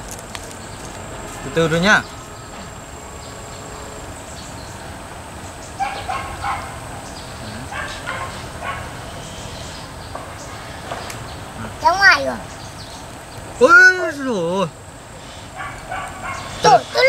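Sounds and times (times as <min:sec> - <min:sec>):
dog yipping: 0:05.8 - 0:06.8, 0:07.7 - 0:09.0, 0:15.6 - 0:17.0.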